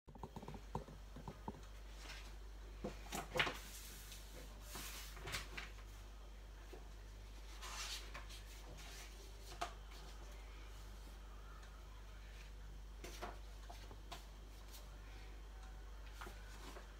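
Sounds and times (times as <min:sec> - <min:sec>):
paper pages rustling: 0:03.2 - 0:06.0.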